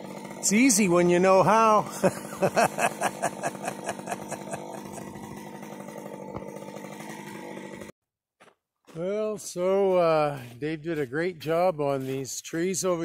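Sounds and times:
chainsaw idling: 0.0 - 8.0.

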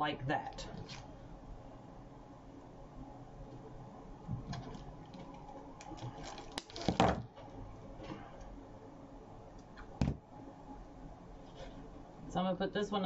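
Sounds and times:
handling artificial flower stems: 4.4 - 8.5.

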